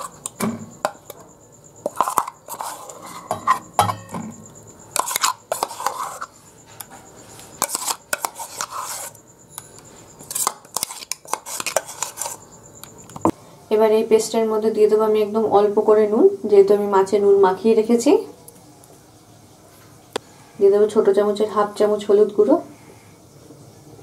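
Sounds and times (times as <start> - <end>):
metal spoon scraping steel jar: 1.8 - 4.1, 4.9 - 6.4, 7.5 - 12.5.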